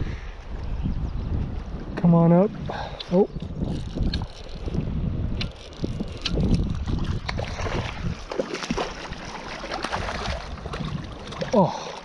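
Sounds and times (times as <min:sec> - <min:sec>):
wind buffeting microphone: 0:00.0 - 0:12.0
fish splashing: 0:05.6 - 0:12.0
rushing river water: 0:06.7 - 0:12.0.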